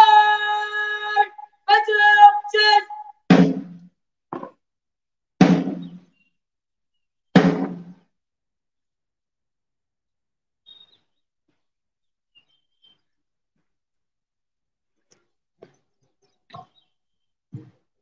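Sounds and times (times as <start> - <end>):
held vocal call: 0.0 - 3.2
drum beats ringing: 2.9 - 3.8, 5.4 - 6.0, 7.4 - 8.0.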